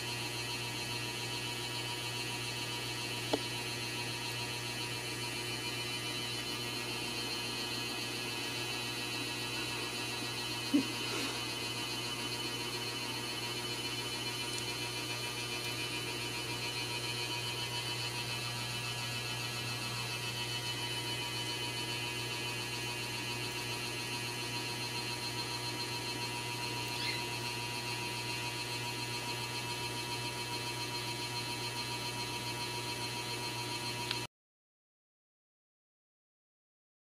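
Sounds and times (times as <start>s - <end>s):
electrical hum: 0.0s - 34.2s
faint high chirp: 26.8s - 27.4s.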